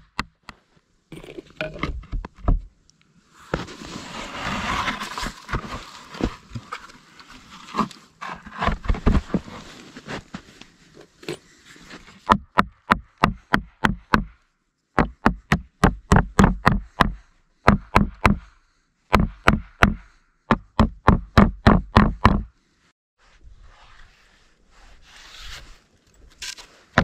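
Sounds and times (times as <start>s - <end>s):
hammer driving nails into wood: 15.0s - 18.5s.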